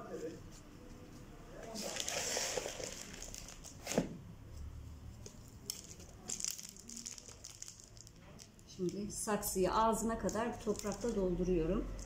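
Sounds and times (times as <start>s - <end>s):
plastic crinkling: 1.6s - 4.1s, 5.2s - 9.5s, 10.2s - 12.0s.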